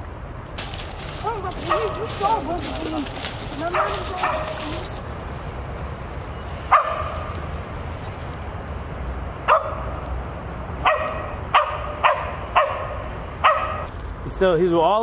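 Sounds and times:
dog barking: 0:01.2 - 0:02.6, 0:03.6 - 0:04.8, 0:06.7 - 0:07.3, 0:09.5 - 0:09.9, 0:10.8 - 0:13.9.

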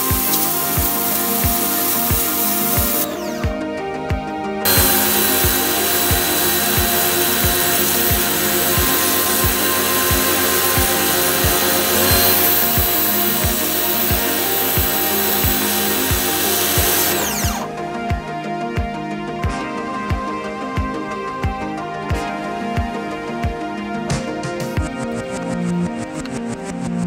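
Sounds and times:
pressure washer jet hissing on tiles: 0:00.0 - 0:03.4, 0:04.7 - 0:17.7
motor whine stopping: 0:00.0 - 0:03.6, 0:04.7 - 0:17.8
background music with steady beat: 0:00.0 - 0:27.0.

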